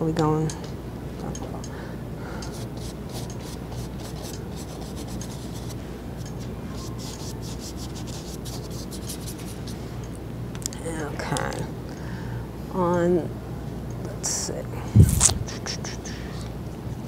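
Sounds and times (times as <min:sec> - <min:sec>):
low room hum: 0:00.0 - 0:17.0
brush scrubbing paint on canvas: 0:02.5 - 0:05.8, 0:06.8 - 0:09.8.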